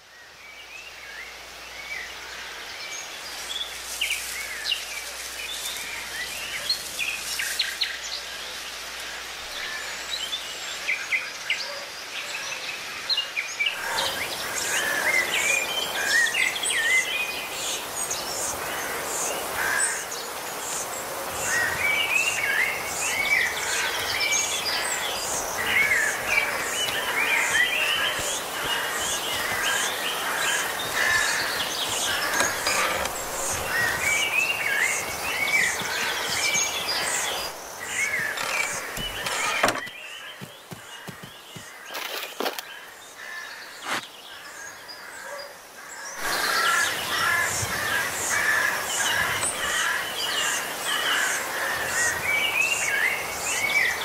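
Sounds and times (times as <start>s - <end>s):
birds chirping and singing: 9.5s - 54.0s.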